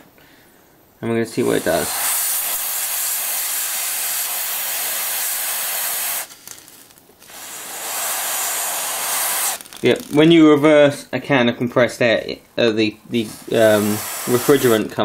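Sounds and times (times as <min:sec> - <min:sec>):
air duster spray hissing: 0:01.4 - 0:10.3, 0:13.1 - 0:15.0.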